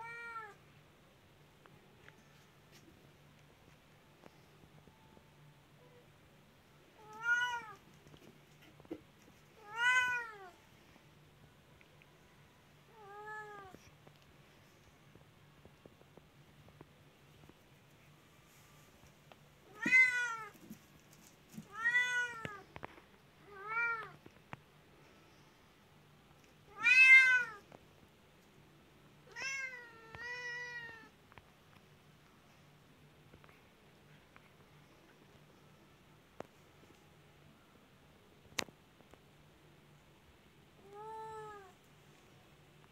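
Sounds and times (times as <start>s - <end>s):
cat meowing: 7.0s - 7.8s, 9.6s - 10.6s, 26.7s - 27.6s, 29.3s - 31.1s.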